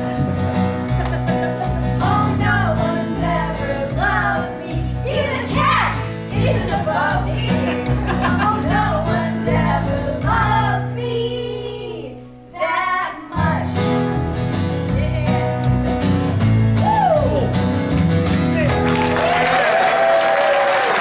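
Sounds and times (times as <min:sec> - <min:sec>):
upright bass: 0:00.0 - 0:19.6
acoustic guitar: 0:00.0 - 0:20.0
children and adults singing: 0:02.0 - 0:14.0.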